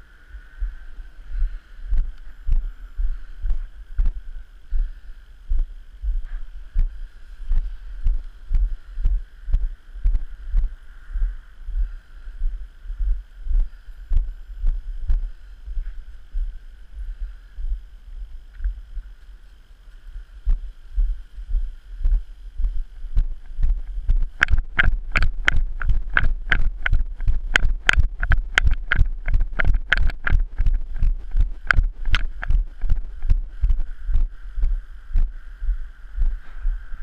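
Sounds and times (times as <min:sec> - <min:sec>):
wind rumble on microphone: 0:00.0 - 0:37.0
footsteps on pavement: 0:18.6 - 0:36.8
sharp click on each step: 0:23.2 - 0:33.4.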